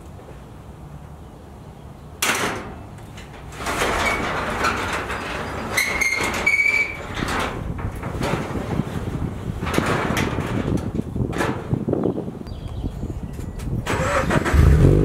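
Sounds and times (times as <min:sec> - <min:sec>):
garage door clunk: 0:02.2 - 0:12.0
garage door rolling rumble: 0:02.4 - 0:12.4
roller squeaks: 0:03.0 - 0:10.7.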